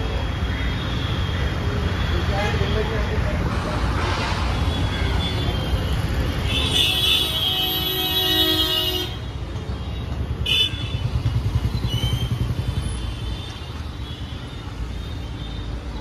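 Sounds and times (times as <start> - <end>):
street traffic: 0.0 - 16.0
vehicle horn: 6.5 - 9.3.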